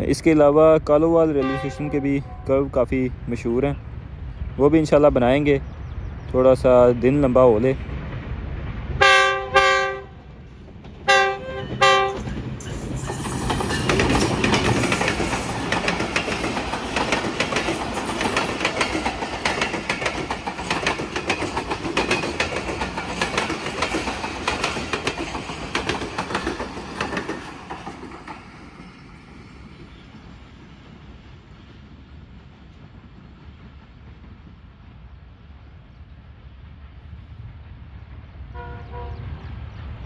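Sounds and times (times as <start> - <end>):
train coaches passing: 0.0 - 40.0
locomotive horn blasts: 1.4 - 2.6, 9.0 - 10.1, 11.1 - 12.2, 38.5 - 39.4
wheels clicking over rail joints: 10.7 - 29.0.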